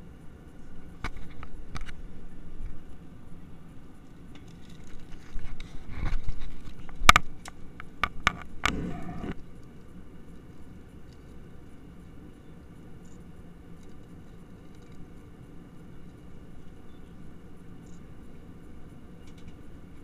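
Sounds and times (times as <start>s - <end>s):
sharp clicks and knocks: 6.0s - 9.4s
airliner cabin drone: 7.1s - 20.0s.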